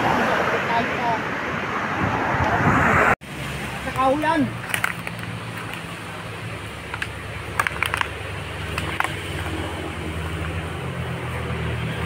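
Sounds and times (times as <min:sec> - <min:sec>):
crackles: 0:06.8 - 0:09.7.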